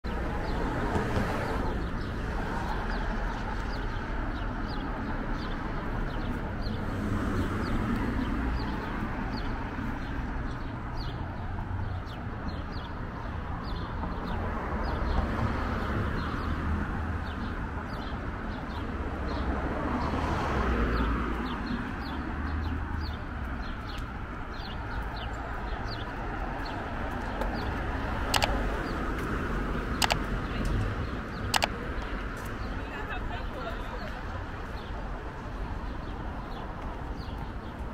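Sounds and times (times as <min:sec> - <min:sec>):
low traffic rumble: 0:00.1 - 0:37.9
sharp click: 0:28.2 - 0:28.7, 0:30.0 - 0:30.3, 0:31.4 - 0:31.8
small bird chirping: 0:28.3 - 0:29.0.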